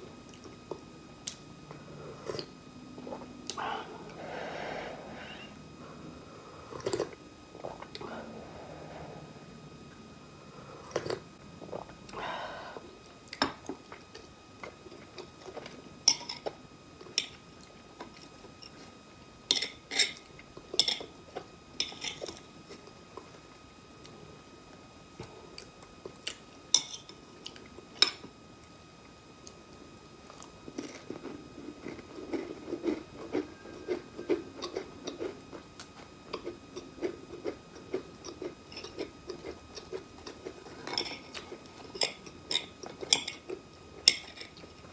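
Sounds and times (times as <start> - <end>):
rhythmic chewing: 5.2 - 8.1, 30.2 - 44.9.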